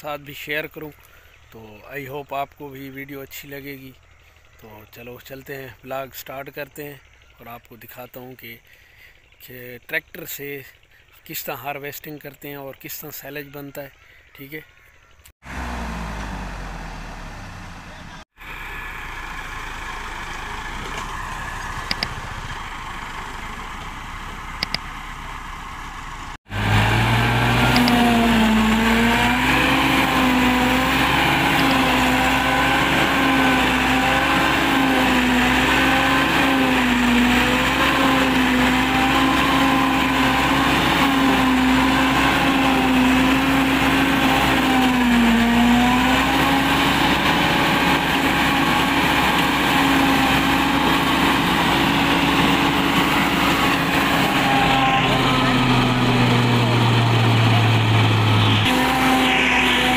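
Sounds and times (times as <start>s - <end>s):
tractor engine running: 0.0s - 13.0s, 14.7s - 59.9s
silage chopper chopping corn: 21.8s - 22.4s, 27.4s - 59.9s.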